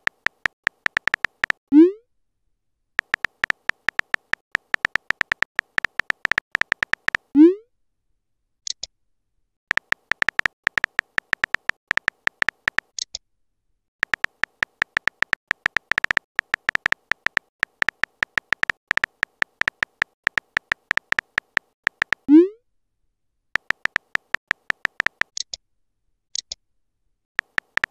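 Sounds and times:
keyboard tap beeps: 0.0 - 1.6, 3.0 - 7.2, 9.7 - 12.9, 14.0 - 22.4, 23.6 - 25.3, 27.4 - 27.9.

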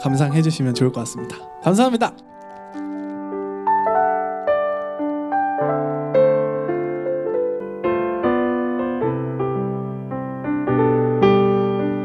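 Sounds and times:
piano chords: 0.0 - 12.0.

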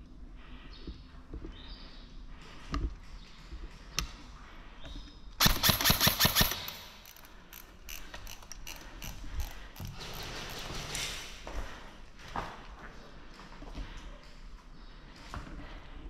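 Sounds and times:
airsoft gun full-auto burst: 5.4 - 7.0
sharp clicks: 5.4 - 9.9.

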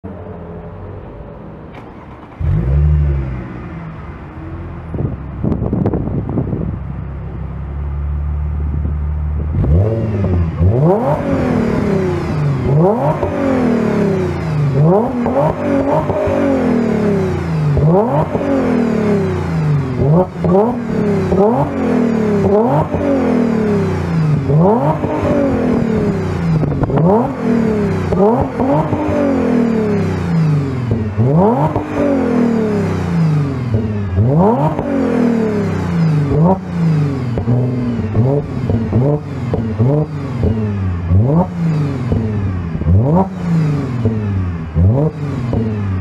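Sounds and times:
car engine revving: 0.1 - 46.0.

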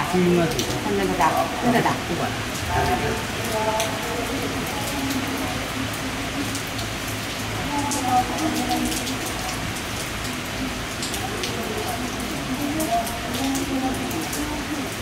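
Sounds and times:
rain falling: 0.0 - 15.0
raindrops ticking on surface: 0.0 - 15.0.

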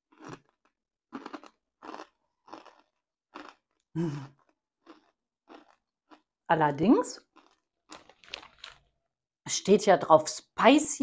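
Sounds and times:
potato chips crunching: 0.0 - 6.4, 7.2 - 8.9.

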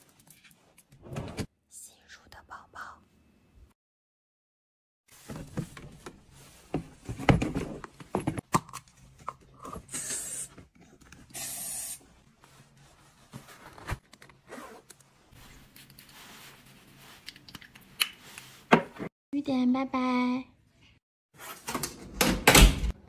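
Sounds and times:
spray can hissing: 11.4 - 12.0.

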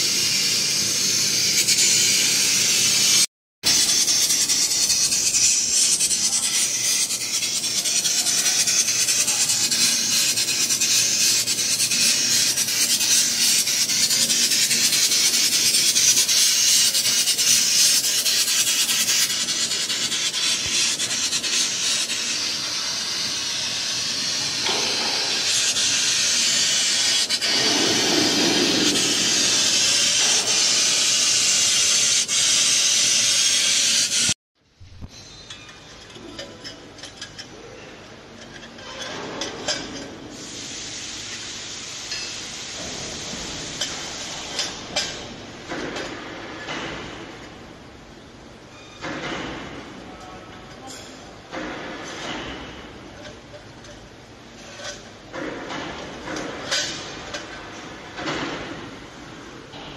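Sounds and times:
laser cutter gas jet hissing: 0.0 - 34.4, 40.3 - 44.7.

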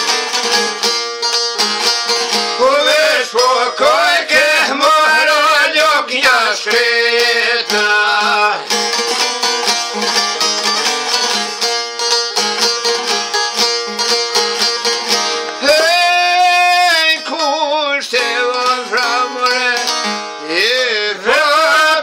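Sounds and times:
plucked lute: 0.0 - 22.0
man singing: 2.6 - 8.8, 15.6 - 22.0.

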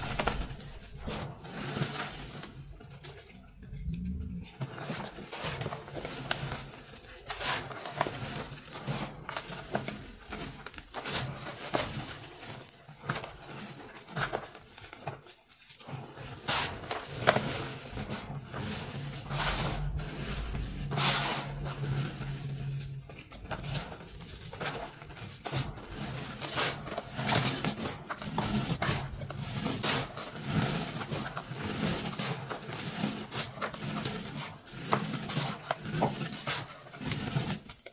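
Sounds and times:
sharp crackles: 0.0 - 1.2
hands crunching gritty powder: 0.0 - 2.8, 16.6 - 33.1.

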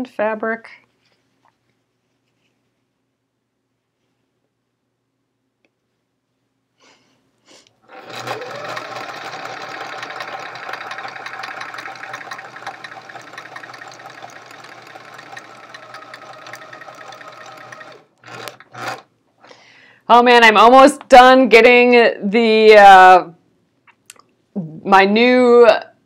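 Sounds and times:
sewing machine stitching: 7.9 - 19.1.

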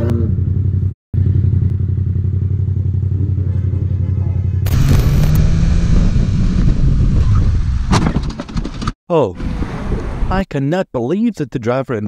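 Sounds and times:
motorcycle engine running: 0.1 - 8.8
wind and road noise: 4.7 - 10.4.

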